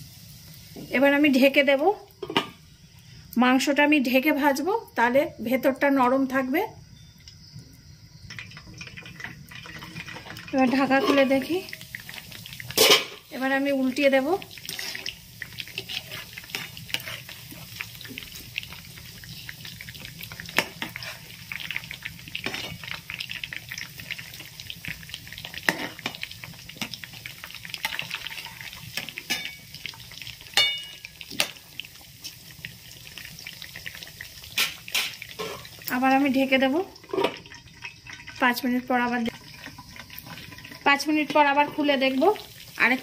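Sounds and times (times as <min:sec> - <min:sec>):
chicken deep-frying in oil: 0:00.0 - 0:43.0
metal spoon clinking on pan: 0:29.3 - 0:29.6, 0:30.6 - 0:31.1.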